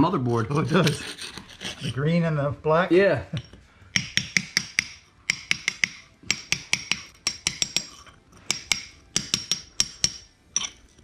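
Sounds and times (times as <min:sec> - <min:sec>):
hammer tapping with bright clink: 0:03.4 - 0:10.7.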